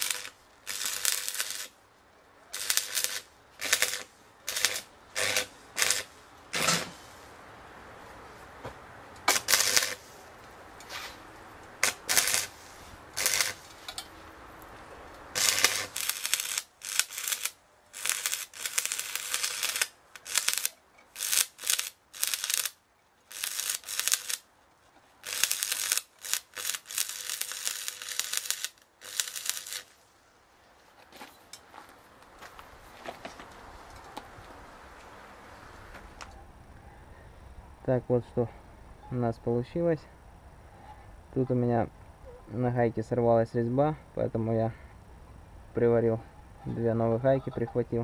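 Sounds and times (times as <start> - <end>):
welding arc crackling: 0.0 - 1.8, 2.5 - 7.0, 9.2 - 10.2, 10.8 - 14.1, 15.3 - 24.5, 25.2 - 30.0.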